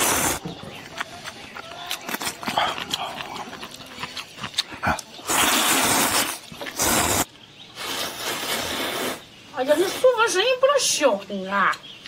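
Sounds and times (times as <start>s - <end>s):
slurping noodles: 4.5s - 9.2s.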